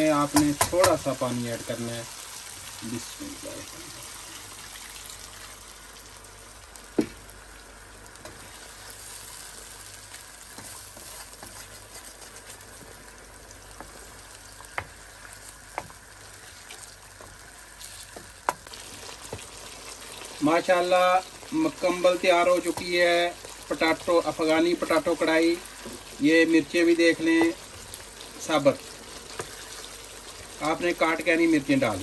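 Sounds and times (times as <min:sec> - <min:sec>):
gravy sizzling in a pan: 0:00.0 - 0:32.0
wooden spoon stirring: 0:10.4 - 0:27.8.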